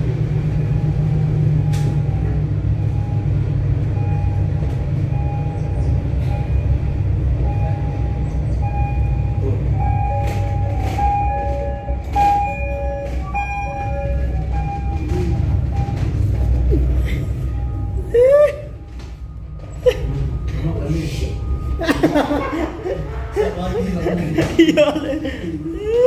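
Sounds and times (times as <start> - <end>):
tramway cabin rumble: 0.0 - 26.0.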